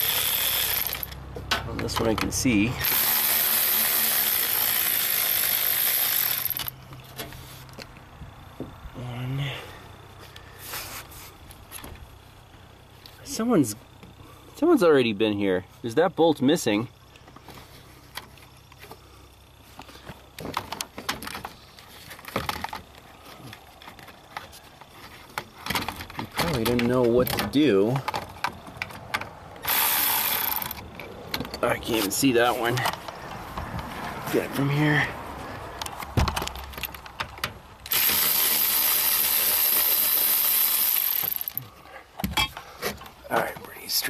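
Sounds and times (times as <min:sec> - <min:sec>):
cordless power tool motor running: 0:00.0 - 0:01.2, 0:02.8 - 0:06.7, 0:29.6 - 0:30.8, 0:37.9 - 0:41.6.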